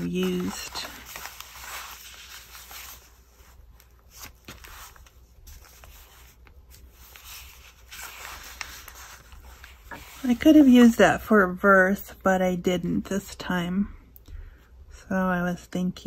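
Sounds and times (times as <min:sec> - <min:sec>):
paper rustling and sliding: 0:00.0 - 0:11.0.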